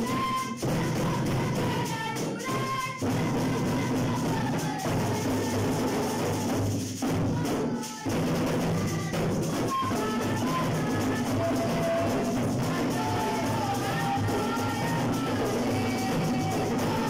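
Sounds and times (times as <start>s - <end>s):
boy singing into a microphone: 0.0s - 17.0s
djembes: 0.0s - 17.0s
frame drum rhythm: 0.0s - 17.0s
tambourine: 0.0s - 17.0s.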